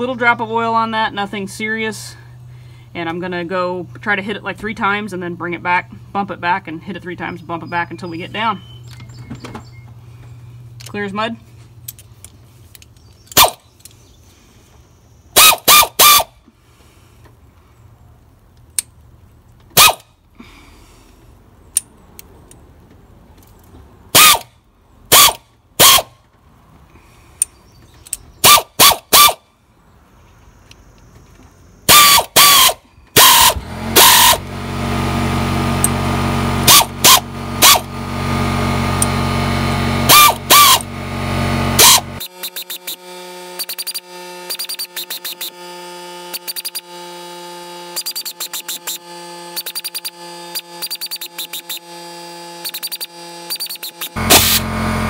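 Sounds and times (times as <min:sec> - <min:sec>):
hand ratchet clicking: 0:31.9 - 0:34.4, 0:41.8 - 0:45.6, 0:46.3 - 0:46.9, 0:47.9 - 0:54.6
steady loud drone: 0:32.1 - 0:55.0.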